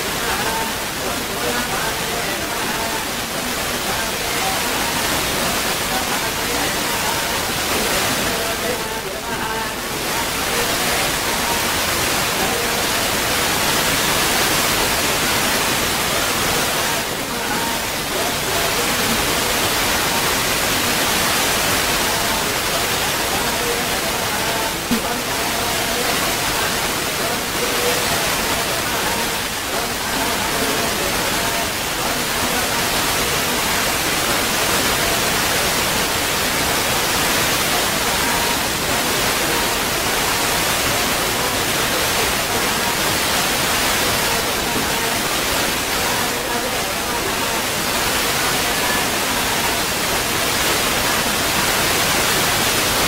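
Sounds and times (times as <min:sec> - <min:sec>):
steady loud hiss: 0:00.0 - 0:53.0
crowd murmuring: 0:22.0 - 0:33.6.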